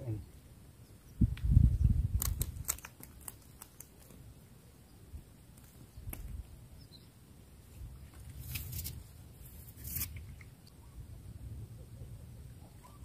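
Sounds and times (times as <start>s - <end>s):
small sharp clicks: 2.1s - 4.2s
low rustle of handling: 7.7s - 10.2s.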